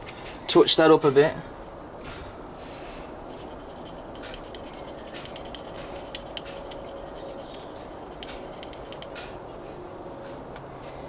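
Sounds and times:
stick scratching model body: 3.2s - 9.4s.

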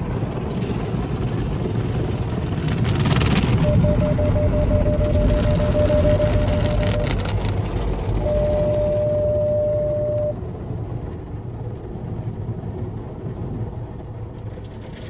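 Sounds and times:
car wash brushes and machinery: 0.0s - 15.0s
steady machine whine: 3.4s - 11.4s.

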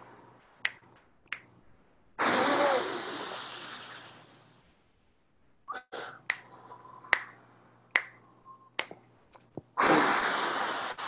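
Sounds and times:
finger snaps: 0.6s - 1.6s, 6.2s - 9.7s.

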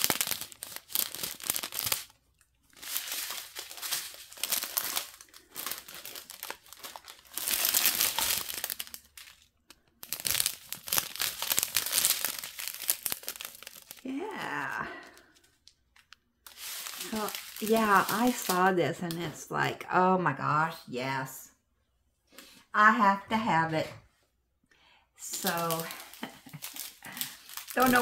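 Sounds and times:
plastic strip crinkling: 0.0s - 19.4s, 25.3s - 28.0s
resin beads shifting: 0.0s - 19.4s, 25.2s - 28.0s.

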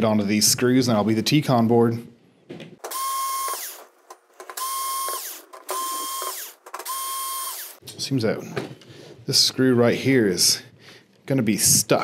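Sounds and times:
electric screwdriver whining: 2.8s - 3.9s, 4.5s - 7.8s.

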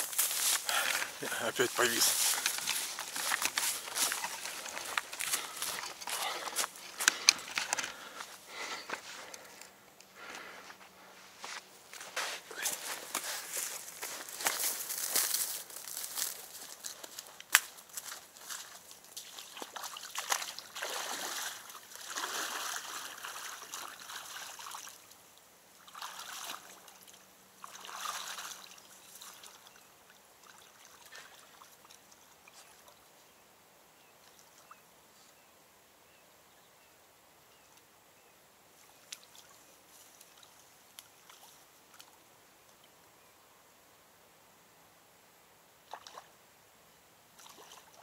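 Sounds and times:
person wading through water: 0.0s - 16.9s, 18.0s - 25.1s, 25.8s - 33.0s, 47.4s - 48.0s.

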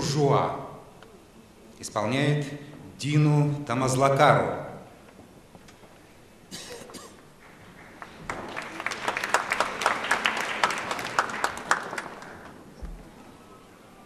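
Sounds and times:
crowd clapping: 7.3s - 12.8s.

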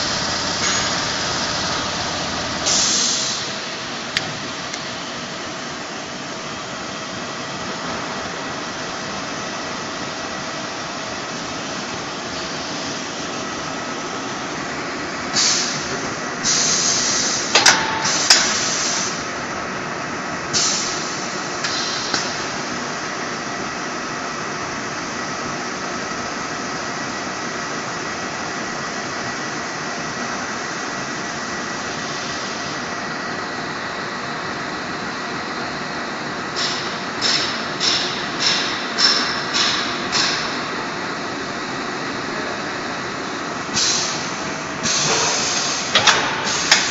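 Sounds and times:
welding machine hissing: 0.0s - 4.2s, 15.3s - 19.3s, 43.7s - 46.9s.

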